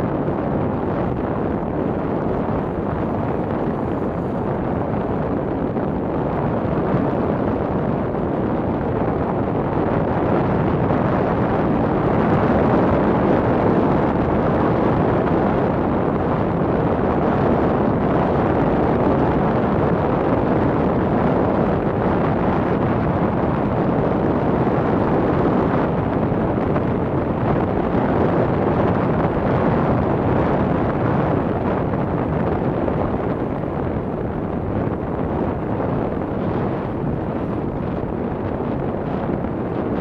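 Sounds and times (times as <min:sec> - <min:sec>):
wind rushing on microphone: 0:00.0 - 0:40.0.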